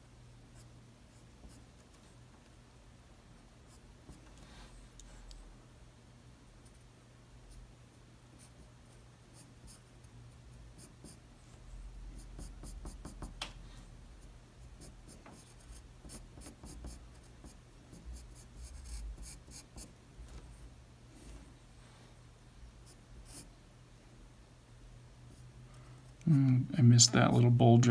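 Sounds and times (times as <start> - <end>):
pencil scratching on paper: 12.2 - 13.4, 14.7 - 19.9, 22.8 - 23.5.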